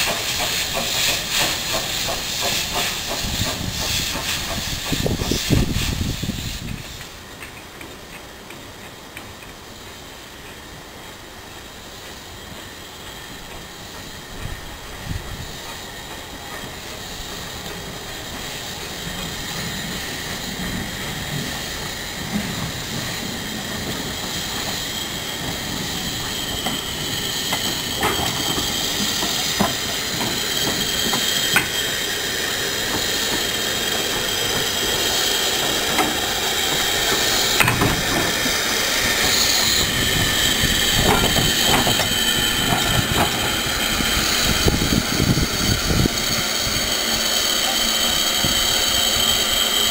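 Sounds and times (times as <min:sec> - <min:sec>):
steam hissing: 0:00.0 - 0:49.9
metallic clanks of wheels: 0:27.5 - 0:31.9, 0:37.2 - 0:38.4.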